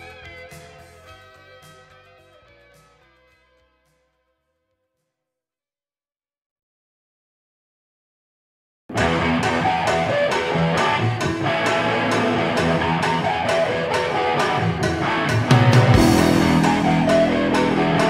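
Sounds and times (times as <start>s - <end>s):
guitar music with steady beat: 0.0s - 4.1s, 8.9s - 18.0s.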